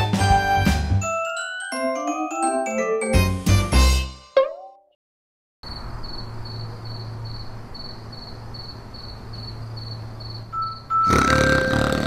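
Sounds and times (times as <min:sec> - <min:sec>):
crickets chirping: 0:05.6 - 0:11.0.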